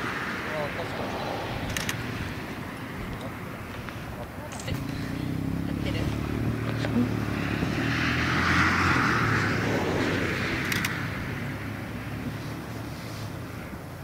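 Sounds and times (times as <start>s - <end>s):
vehicle passing: 0.0s - 14.0s.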